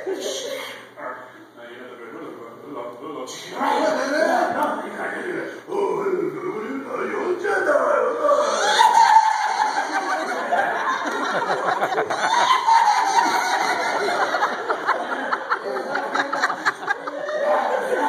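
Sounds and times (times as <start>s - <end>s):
audience laughing: 8.4s - 18.0s.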